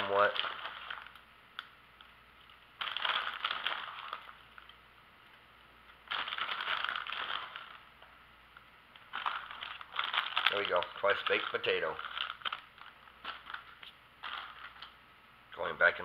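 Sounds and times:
crinkling and crackling foil: 0.0s - 4.8s, 6.0s - 7.9s, 9.0s - 15.0s.

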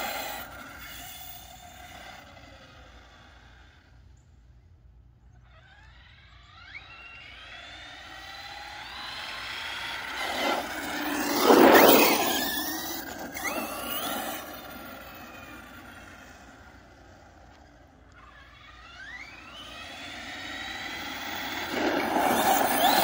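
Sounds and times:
electric motor whine: 5.6s - 23.0s
tyre noise on asphalt: 9.0s - 23.0s.

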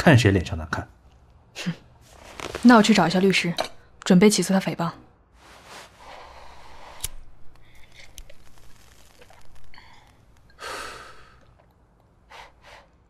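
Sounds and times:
soft breathing: 5.4s - 8.3s, 9.6s - 13.0s
outward breath sigh: 9.8s - 11.5s.

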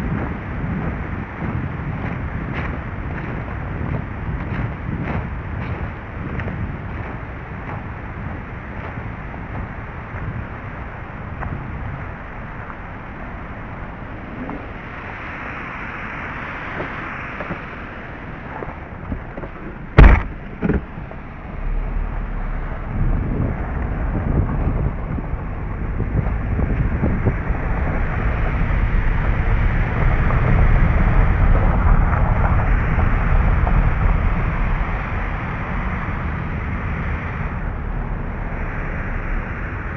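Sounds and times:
car engine starting and driving off: 0.0s - 39.9s
footsteps on gravel: 0.1s - 10.4s
car door slamming: 20.0s - 20.9s.

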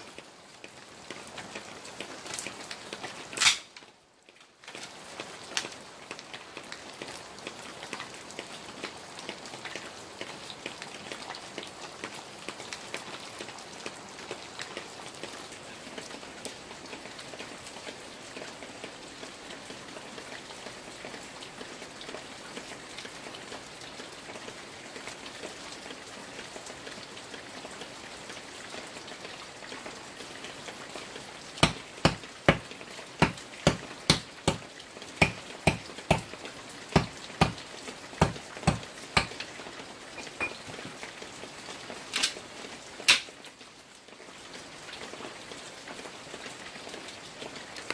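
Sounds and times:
rain pattering on leaves: 0.0s - 47.9s
sharp knocks: 31.6s - 36.3s, 37.0s - 37.6s, 38.2s - 39.5s.

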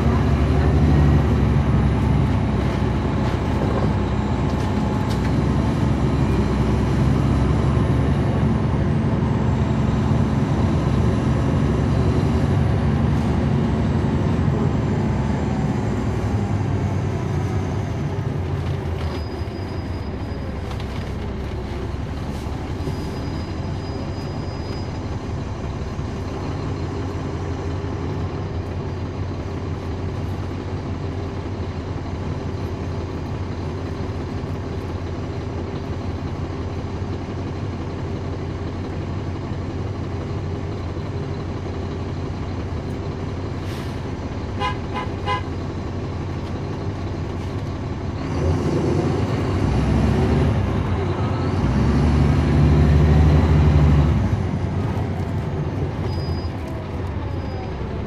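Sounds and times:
bus diesel engine running: 0.0s - 58.0s.

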